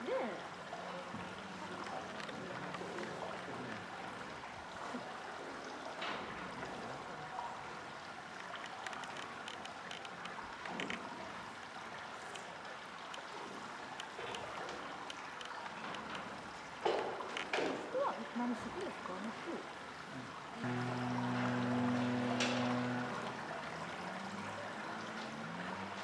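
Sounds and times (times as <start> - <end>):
running water rushing: 0.0 - 26.0
faint clicks: 8.4 - 11.1, 12.2 - 16.4.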